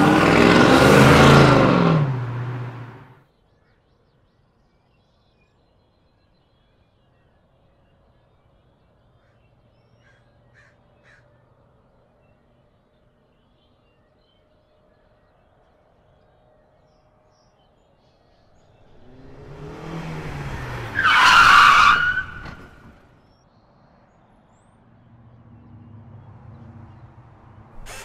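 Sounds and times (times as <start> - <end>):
rushing whoosh with high screech: 27.8 - 28.0.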